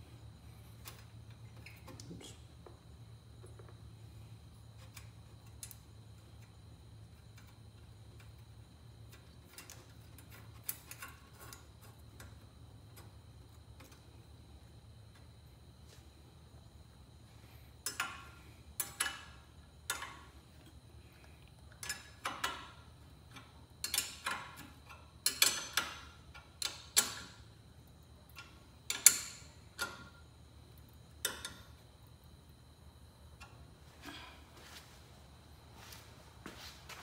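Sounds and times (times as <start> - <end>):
wrench clicking on bolts: 17.8 - 20.2, 21.8 - 27.3, 28.3 - 30.2.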